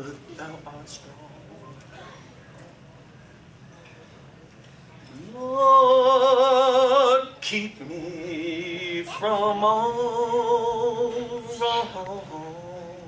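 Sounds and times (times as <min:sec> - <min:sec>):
man singing with vibrato: 0:05.2 - 0:13.0.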